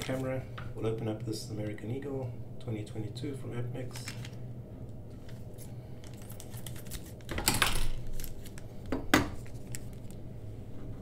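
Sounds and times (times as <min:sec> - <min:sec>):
plastic bag crinkling: 0:05.5 - 0:10.2
sharp plastic crackle: 0:06.0 - 0:10.2.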